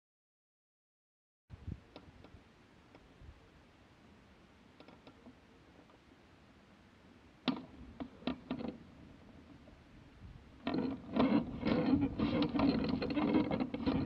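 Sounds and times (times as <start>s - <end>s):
sharp clicks and knocks: 4.8s - 6.0s, 7.4s - 8.8s, 10.6s - 14.0s
gear rattling and rustling: 10.6s - 14.0s.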